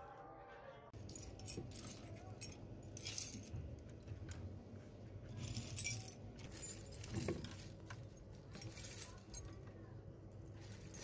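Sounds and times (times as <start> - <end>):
small metal hardware clinking: 1.0 - 3.6, 5.3 - 9.7.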